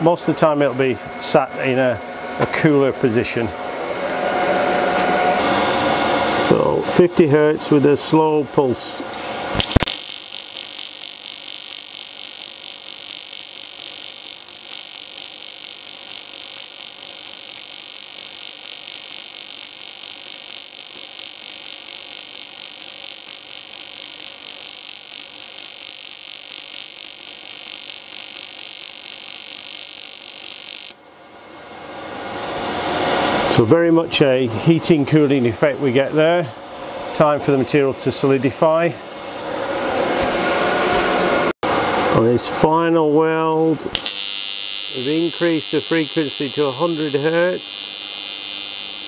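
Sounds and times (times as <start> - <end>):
welding arc buzzing: 9.1 - 31.0, 43.5 - 49.0.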